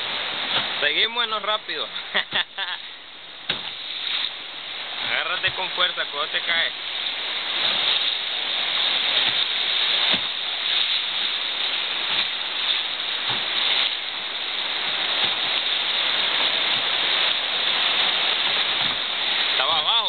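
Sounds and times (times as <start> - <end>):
river rapids rushing: 2.8 - 20.0
soft knocks on boat: 3.5 - 3.8, 10.1 - 10.4, 13.2 - 13.6, 18.7 - 19.1.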